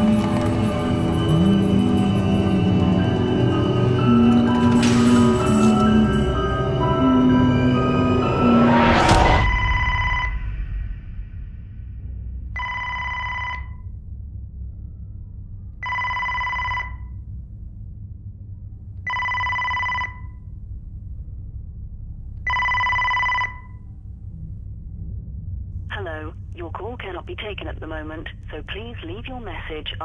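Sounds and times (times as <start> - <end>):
low hum: 0.0 - 30.0
telephone ringing: 9.4 - 10.6, 12.6 - 13.9, 15.8 - 17.2, 19.0 - 20.5, 22.4 - 24.0.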